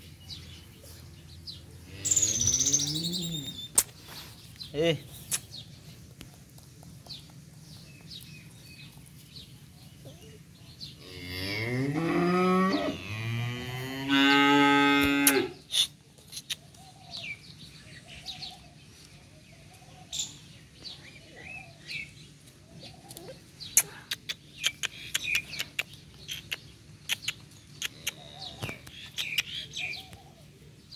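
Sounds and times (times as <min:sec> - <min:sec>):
cow mooing: 0:11.0 - 0:15.6.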